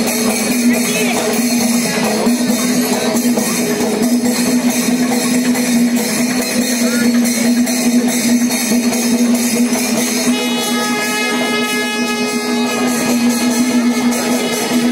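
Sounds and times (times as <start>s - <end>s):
cymbals crashing: 0.0s - 14.9s
drums beating fast: 0.0s - 14.9s
low held note: 10.2s - 14.9s.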